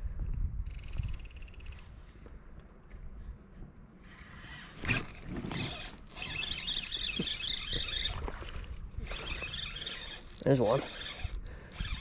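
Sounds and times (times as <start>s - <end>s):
fishing reel whirring: 0.6s - 1.7s, 4.0s - 12.0s.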